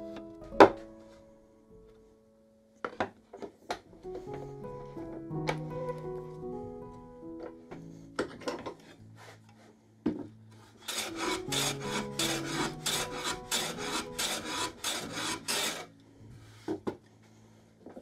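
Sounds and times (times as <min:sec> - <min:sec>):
soft background music: 0:00.0 - 0:18.0
handsaw cutting plywood: 0:10.8 - 0:15.9.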